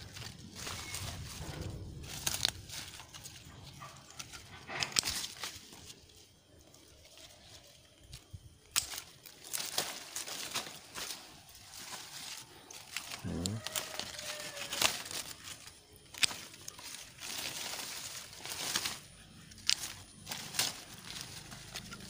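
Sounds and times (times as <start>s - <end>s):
leaves rustling: 0.0s - 22.0s
pruning shears snipping: 8.7s - 11.2s, 12.9s - 22.0s.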